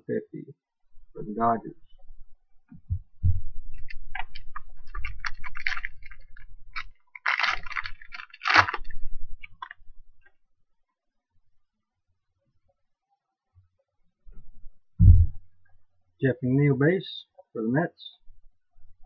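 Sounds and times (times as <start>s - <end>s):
wrapper crinkling and tearing: 3.7s - 9.9s.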